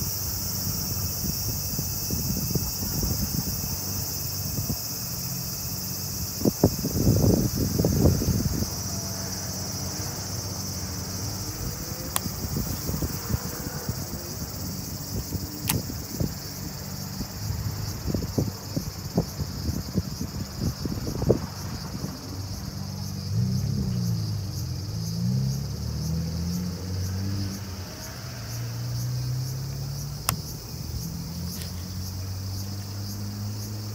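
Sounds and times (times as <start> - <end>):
insect chorus: 0.0 - 33.9
low engine hum: 0.0 - 33.9
sharp ticks: 12.0 - 13.4, 14.6 - 17.0, 30.0 - 31.9.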